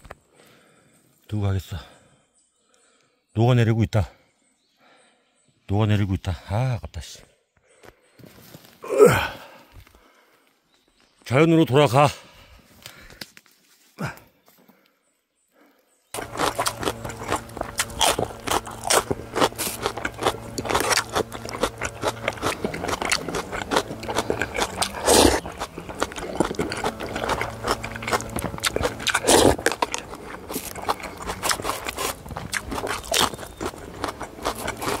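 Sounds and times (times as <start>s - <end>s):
crunchy chewing: 16.2s - 35.0s.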